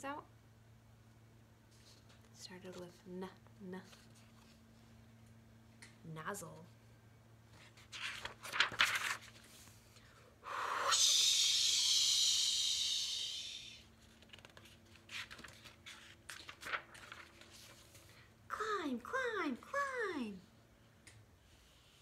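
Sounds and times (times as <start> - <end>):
book page turning: 3.8 - 4.9, 7.5 - 10.0, 14.0 - 18.2
woman making a breathy hiss: 10.4 - 13.8.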